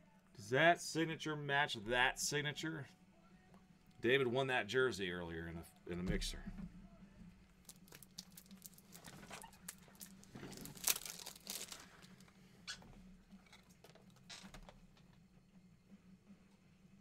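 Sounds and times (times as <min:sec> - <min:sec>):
crinkly rustling: 0:07.6 - 0:12.5.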